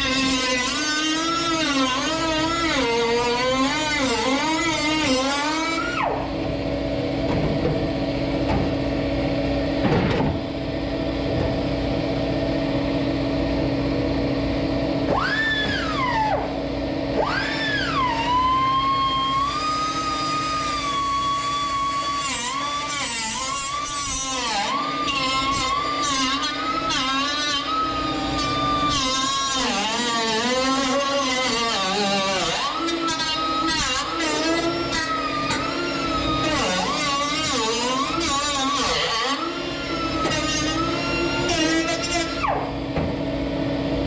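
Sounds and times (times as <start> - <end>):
metal-cutting tool cutting sheet metal: 0.0 - 6.2, 17.1 - 42.8.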